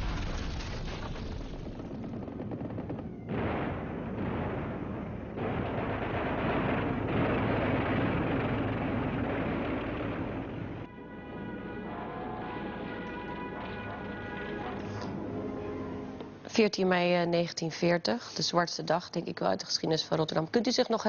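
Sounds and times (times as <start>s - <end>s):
rapid gunfire: 1.8s - 14.8s.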